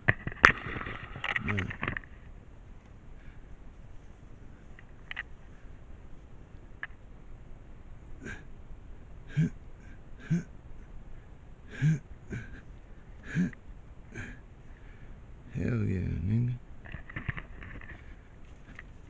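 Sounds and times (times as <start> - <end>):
man making short vocal sounds: 9.3 - 9.6, 10.2 - 10.5, 11.7 - 13.6.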